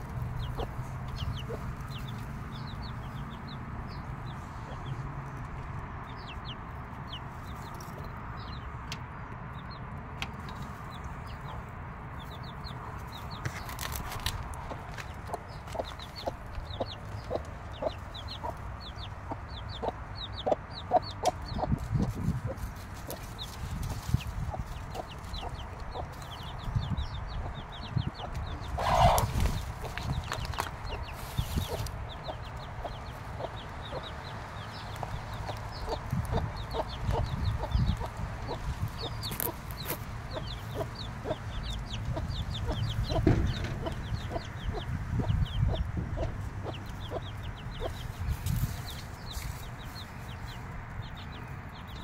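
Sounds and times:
hen clucking: 0.0 - 3.5, 13.3 - 49.5
chicks peeping: 0.0 - 52.0.

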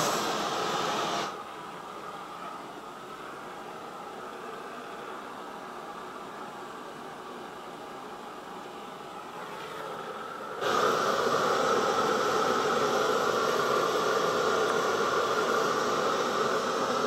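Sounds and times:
gas torch hissing: 0.0 - 1.4, 9.8 - 17.0.

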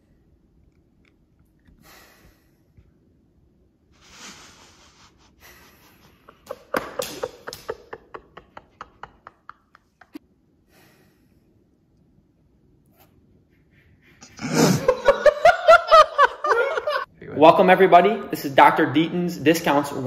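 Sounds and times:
man laughing: 4.2 - 10.2, 14.2 - 17.1.

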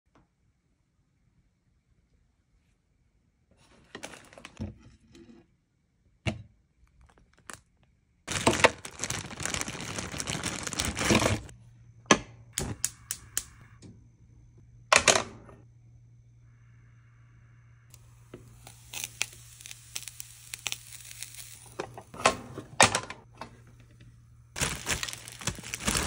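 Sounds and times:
plastic bag rustling: 7.0 - 7.7, 8.3 - 11.5, 18.0 - 22.2, 24.6 - 26.0
steady low hum: 11.4 - 26.0.

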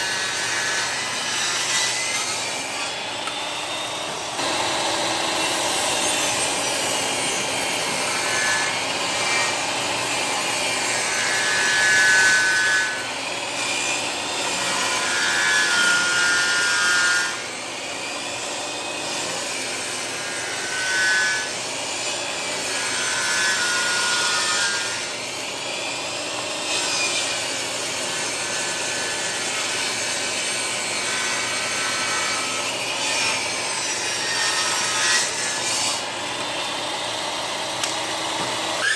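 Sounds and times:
table saw ripping boards: 0.0 - 36.8, 37.8 - 38.9.

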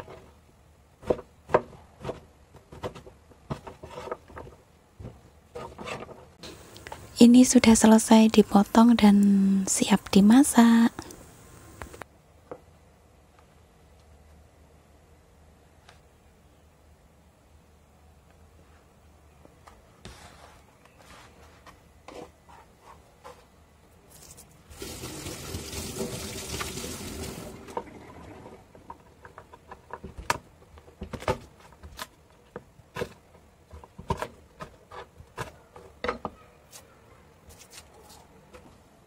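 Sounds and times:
kitchen tap running: 24.7 - 28.7.

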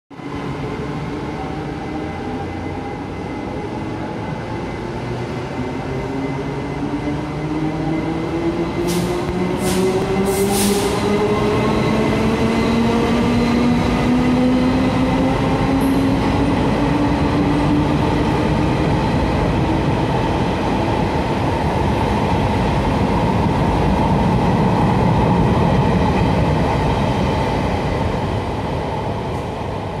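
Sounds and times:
short hisses: 8.9 - 11.0.

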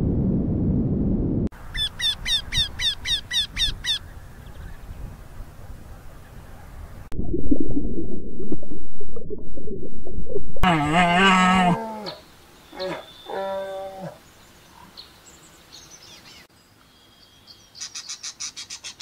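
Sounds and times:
bird repeated calls: 1.8 - 4.7, 17.8 - 19.0.

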